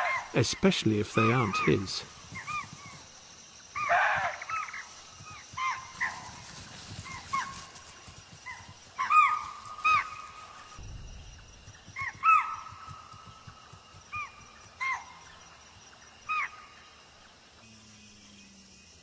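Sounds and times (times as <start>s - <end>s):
deer alarm calls: 0.0s - 3.0s, 3.7s - 6.4s, 8.4s - 10.6s, 11.9s - 13.2s.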